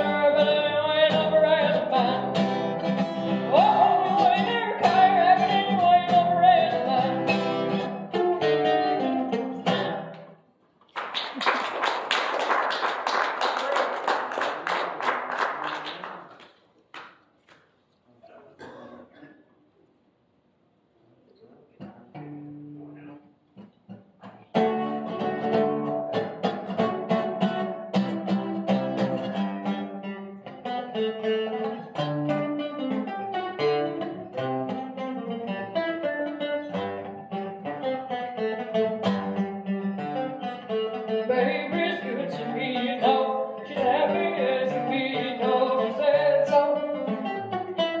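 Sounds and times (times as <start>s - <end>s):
acoustic guitar strumming rock and roll: 0.0s - 10.4s, 23.6s - 48.0s.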